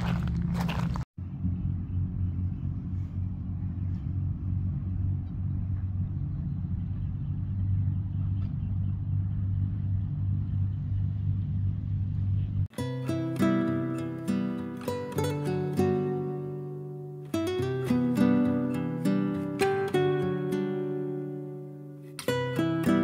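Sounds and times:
engine rumbling steadily: 0.0 - 12.8.

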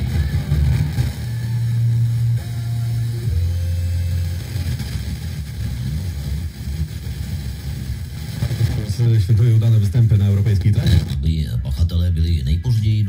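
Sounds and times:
music with low bass line: 0.0 - 8.9
radio hiss: 0.0 - 13.0.

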